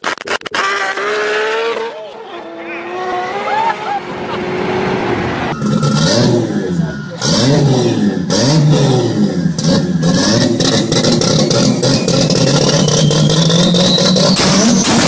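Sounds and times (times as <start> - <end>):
exhaust popping and cracking: 0.0 - 1.2, 9.6 - 15.0
car engine revving: 0.4 - 15.0
rising turbo whistle: 5.4 - 8.2, 12.0 - 15.0.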